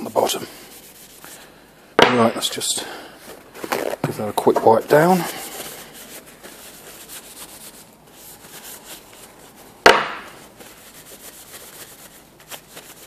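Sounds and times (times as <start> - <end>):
paper towel rubbing on wood: 0.0 - 1.5, 3.7 - 9.7, 10.3 - 13.0
sharp knock: 2.0 - 2.4, 9.9 - 10.3.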